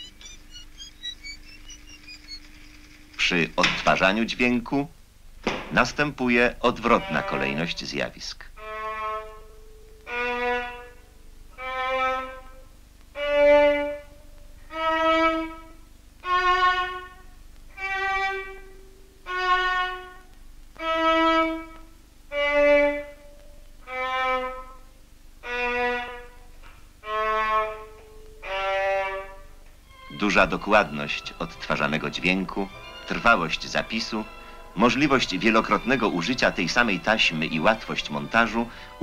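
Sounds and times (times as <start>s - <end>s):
faint steady tone: 0.0s - 3.6s
violin bowed notes: 6.3s - 7.9s, 8.6s - 26.4s, 27.0s - 39.0s.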